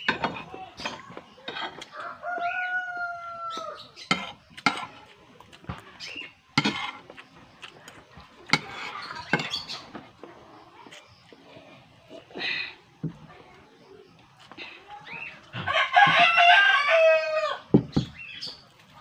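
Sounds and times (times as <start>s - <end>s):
chickens clucking: 0.0s - 16.4s
metal spoon scraping a plate: 0.1s - 1.9s, 8.5s - 9.9s
rooster crowing: 1.9s - 3.9s, 15.6s - 17.7s.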